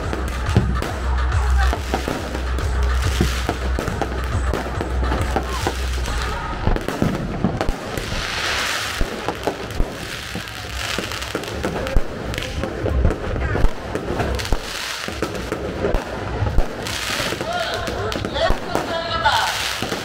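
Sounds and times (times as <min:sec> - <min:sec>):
fireworks popping and crackling: 0:00.0 - 0:20.0
crackling hiss: 0:07.6 - 0:12.8.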